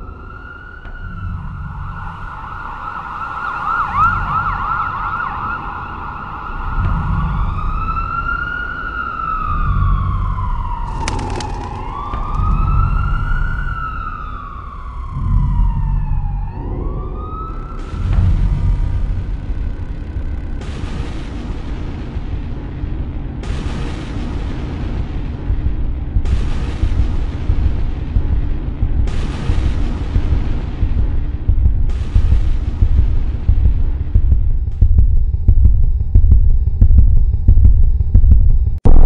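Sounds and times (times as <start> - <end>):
emergency vehicle siren wailing: 0.0 - 20.8
deep low thuds: 9.7 - 14.0, 24.6 - 39.0.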